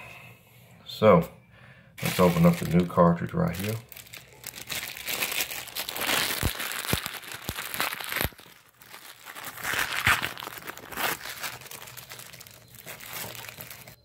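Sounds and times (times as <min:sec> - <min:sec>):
plastic bag crinkling: 0:02.0 - 0:14.0.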